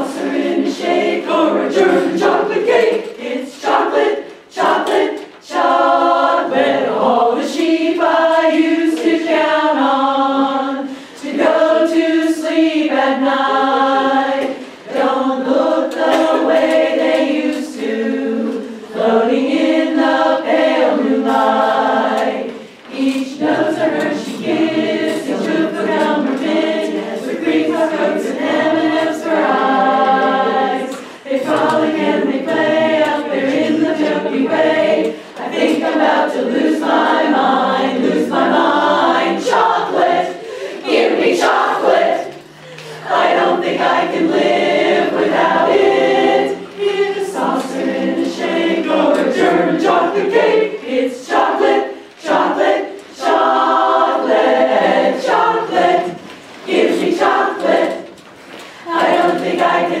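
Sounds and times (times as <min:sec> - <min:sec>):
women's chorus singing a cappella: 0:00.0 - 1:00.0.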